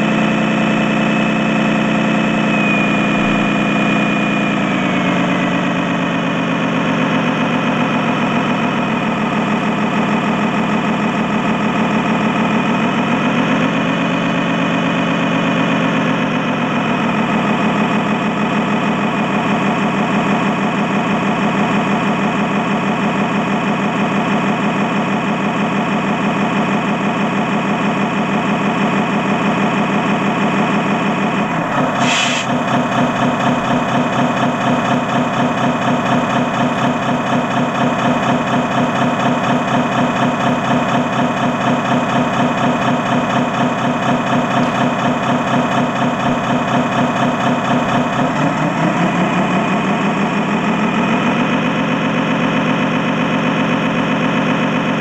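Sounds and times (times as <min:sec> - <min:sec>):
simulated diesel engine running: 0:00.0 - 0:55.0.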